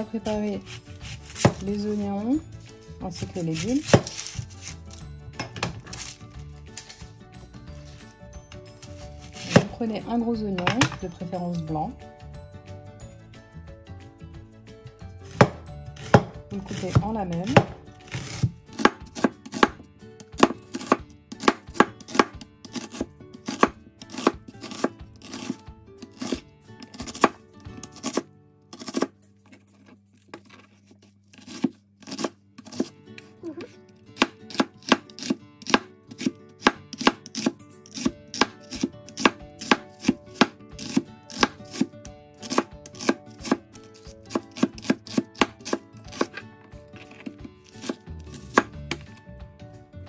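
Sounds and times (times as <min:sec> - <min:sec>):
knife chopping on cutting board: 0:00.5 - 0:02.0, 0:03.2 - 0:04.8, 0:08.8 - 0:09.8, 0:15.3 - 0:29.1, 0:30.4 - 0:33.3, 0:34.2 - 0:49.2.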